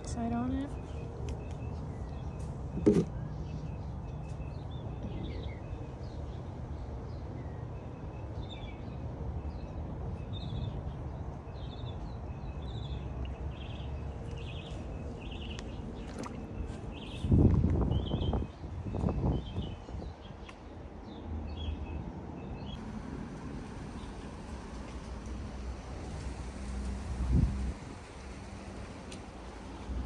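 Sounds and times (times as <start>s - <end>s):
birds chirping: 0.0s - 22.8s
low outdoor rumble: 0.0s - 30.0s.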